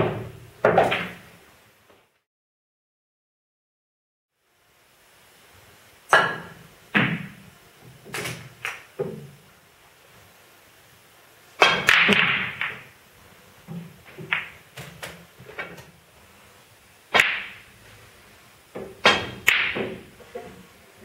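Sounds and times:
snooker balls clicking: 0.0 - 1.3, 6.1 - 9.4, 11.6 - 13.0, 13.6 - 15.9, 17.1 - 17.7, 18.7 - 20.7.

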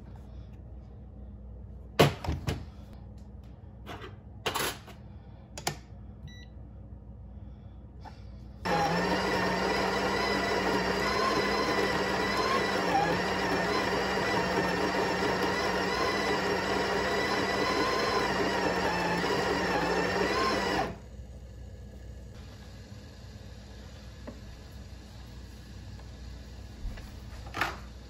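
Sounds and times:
coffee grinder motor: 8.6 - 21.0.

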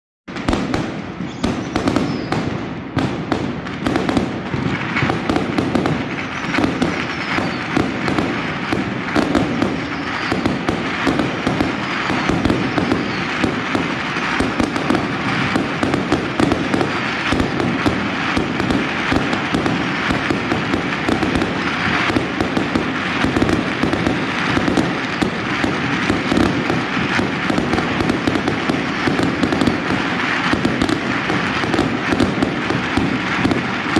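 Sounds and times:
fireworks bangs and crackling: 0.3 - 33.9.

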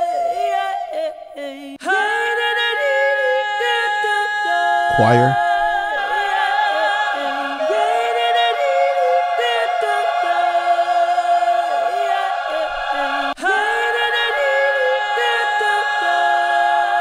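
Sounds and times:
soul choir singing: 0.3 - 17.0.

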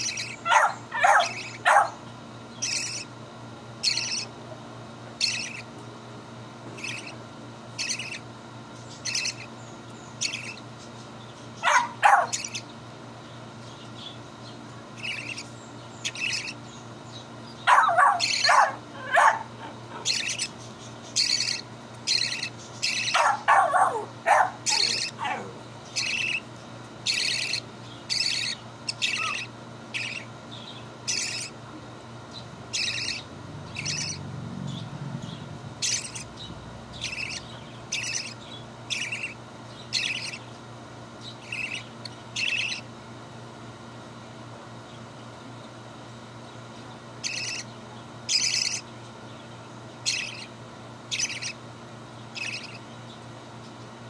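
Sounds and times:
budgerigar chick begging calls: 0.0 - 2.0, 2.6 - 3.1, 3.8 - 4.3, 5.2 - 5.7, 6.8 - 7.2, 7.8 - 8.3, 8.9 - 9.5, 10.2 - 10.6, 11.6 - 12.7, 15.0 - 16.6, 17.6 - 30.4, 31.0 - 31.6, 32.3 - 40.4, 41.2 - 42.9, 47.2 - 47.7, 48.3 - 48.8, 50.0 - 50.5, 51.1 - 51.6, 52.3 - 52.8.

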